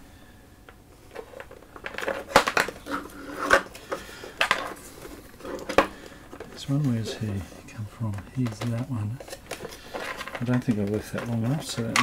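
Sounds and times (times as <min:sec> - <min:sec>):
cables and plugs clattering: 0:00.7 - 0:12.0.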